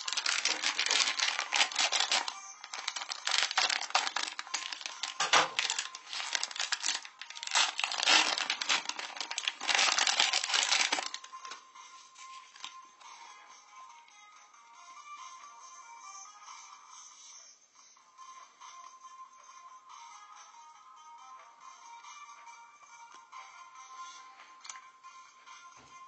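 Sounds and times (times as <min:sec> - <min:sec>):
wrapper crinkling: 0:00.0 - 0:11.6, 0:12.2 - 0:12.8.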